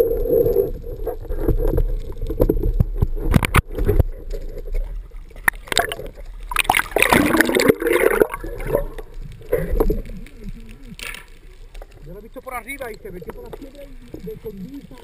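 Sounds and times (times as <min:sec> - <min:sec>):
sea water sloshing and gurgling: 0:00.0 - 0:11.2.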